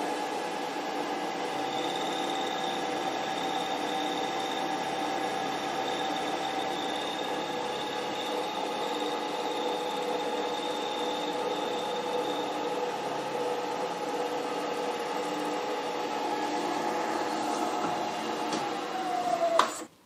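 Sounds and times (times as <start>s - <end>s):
milling machine cutting steel: 1.6s - 13.0s.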